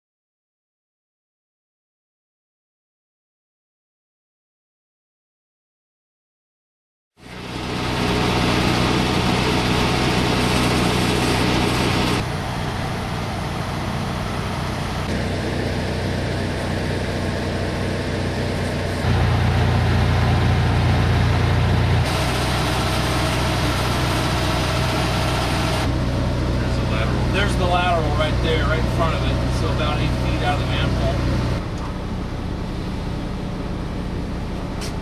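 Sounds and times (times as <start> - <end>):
truck engine idling: 7.2 - 35.0.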